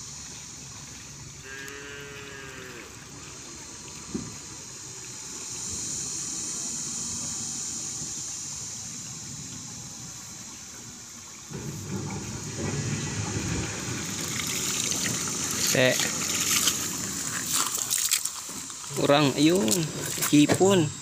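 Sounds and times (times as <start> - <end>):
cow mooing: 1.4 - 2.9
river water rushing: 10.7 - 20.4.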